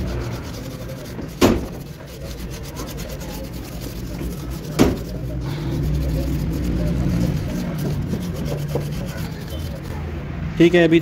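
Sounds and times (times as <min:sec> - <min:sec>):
scouring pad scraping metal: 0:00.0 - 0:10.1
sharp knocks: 0:01.2 - 0:01.8, 0:04.7 - 0:05.2.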